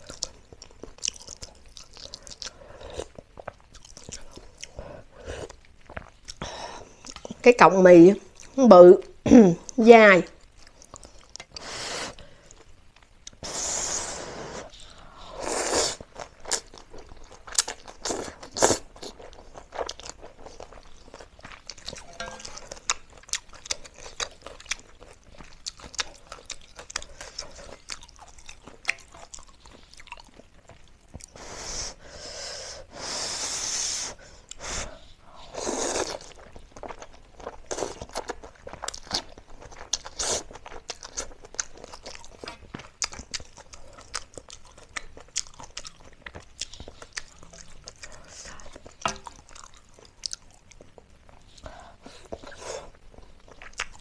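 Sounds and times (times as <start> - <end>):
chewing: 0.0 - 7.4, 10.4 - 13.6, 14.5 - 31.4, 34.2 - 54.0
slurping noodles: 13.4 - 16.1.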